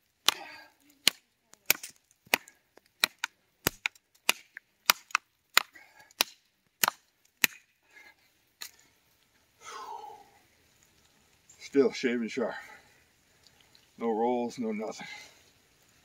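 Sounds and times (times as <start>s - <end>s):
knife chopping wood: 0.2s - 7.7s.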